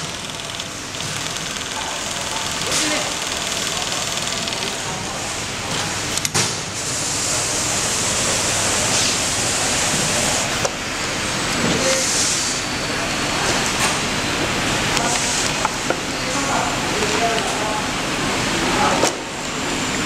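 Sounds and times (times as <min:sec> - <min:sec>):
sharp mechanical clicks: 0:00.0 - 0:04.9
sewing machine running: 0:00.0 - 0:05.3.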